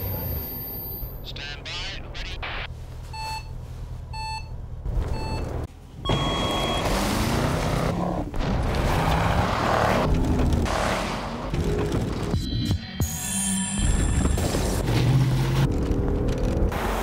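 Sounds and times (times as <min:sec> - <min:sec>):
countdown beeps: 0:06.1 - 0:06.9.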